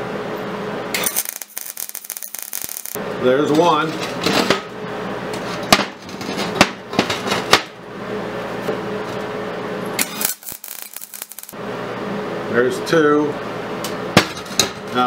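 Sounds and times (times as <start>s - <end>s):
welding arc crackle: 0.9s - 3.0s, 10.0s - 11.6s
steel clanking on welding table: 0.9s - 4.7s, 10.0s - 11.6s.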